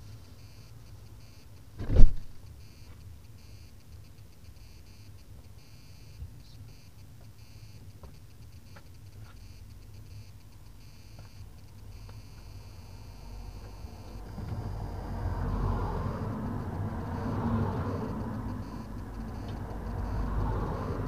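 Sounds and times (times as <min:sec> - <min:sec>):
low steady hum: 0:00.0 - 0:21.0
heavy thump: 0:01.8 - 0:02.4
high electronic beeps: 0:09.4 - 0:21.0.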